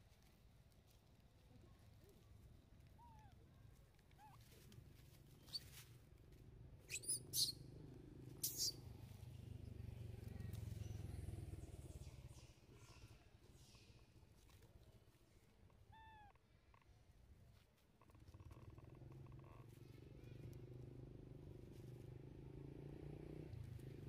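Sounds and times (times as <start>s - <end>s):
faint chirps: 6.8s - 7.7s, 8.4s - 14.7s
baby monkey squealing: 6.9s - 7.6s, 8.4s - 8.8s.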